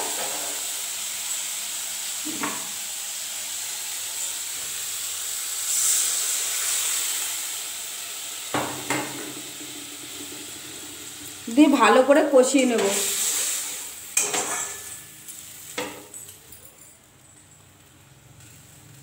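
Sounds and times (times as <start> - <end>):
sauce sizzling in a pan: 0.0 - 16.1
spatula knocking a pan: 8.5 - 9.7.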